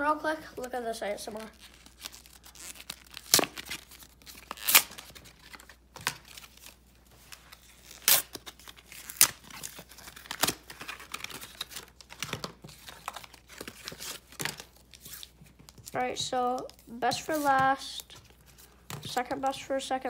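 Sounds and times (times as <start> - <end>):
packaging crinkling: 1.3 - 16.0
blister packaging tearing: 1.4 - 6.8, 7.5 - 15.9.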